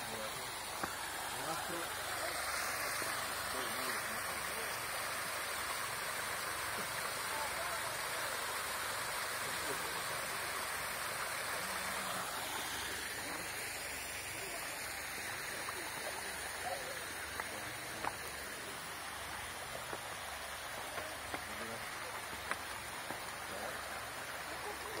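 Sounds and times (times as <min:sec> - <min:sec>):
stream rushing over rocks: 0:00.0 - 0:25.0
footsteps on stones: 0:17.3 - 0:18.4, 0:22.1 - 0:23.3.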